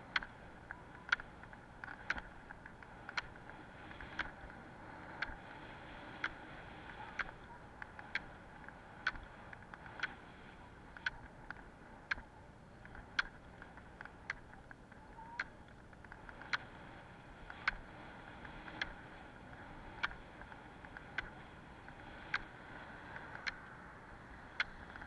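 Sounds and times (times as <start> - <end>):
ski pole tips clicking on asphalt: 0.0 - 25.0
ski wheels rolling on road: 0.0 - 25.0.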